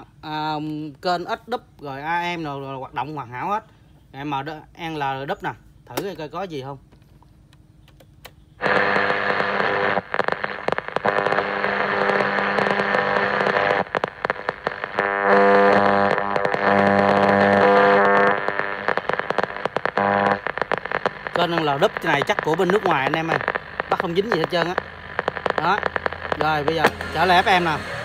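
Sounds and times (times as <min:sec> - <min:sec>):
radio static hiss and crackle: 0:00.0 - 0:06.9, 0:08.2 - 0:28.0
steady radio buzz: 0:08.3 - 0:28.0.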